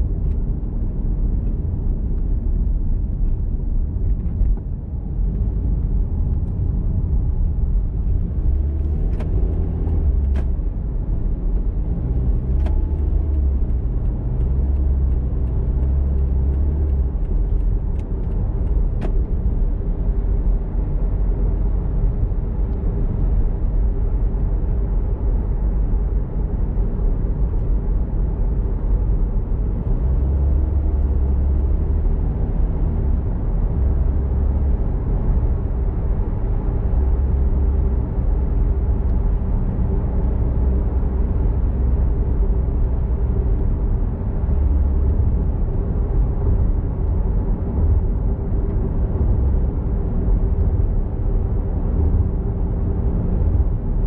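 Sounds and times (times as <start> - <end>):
car engine and tyre rumble: 0.0 - 54.0.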